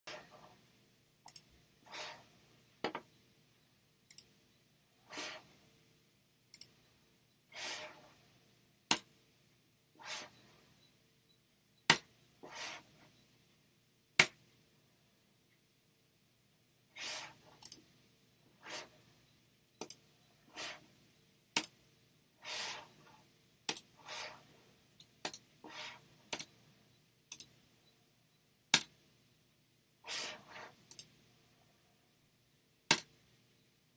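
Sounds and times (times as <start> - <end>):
computer mouse clicks: 1.3 - 1.5, 4.1 - 4.3, 6.5 - 6.8, 17.6 - 17.8, 19.8 - 20.0, 26.3 - 26.5, 27.3 - 27.5, 30.8 - 31.1.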